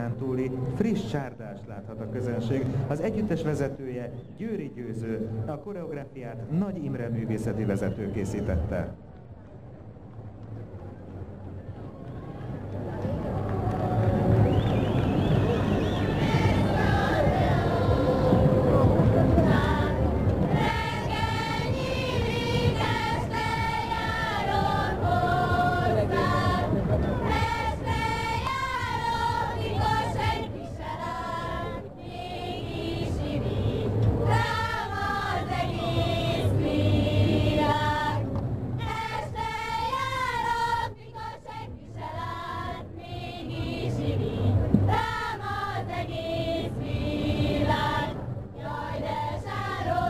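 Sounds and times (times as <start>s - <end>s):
women singing folk song: 15.8s - 50.0s.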